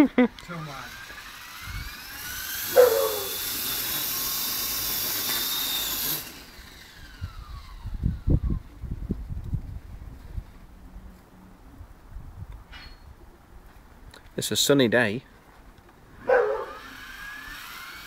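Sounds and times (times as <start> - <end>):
small electric motor whine: 0.3 - 8.9, 16.1 - 18.0.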